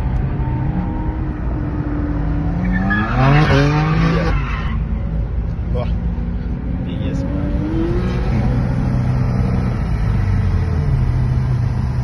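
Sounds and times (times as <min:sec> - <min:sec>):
car engine revving: 0:00.8 - 0:04.4, 0:06.8 - 0:12.0.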